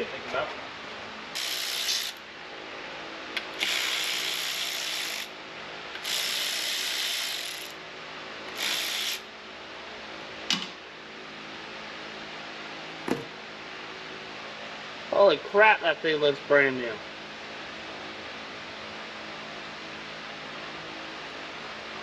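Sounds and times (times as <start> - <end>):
electric ratchet running: 1.3 - 2.2, 3.4 - 5.3, 5.9 - 7.8, 8.5 - 9.2.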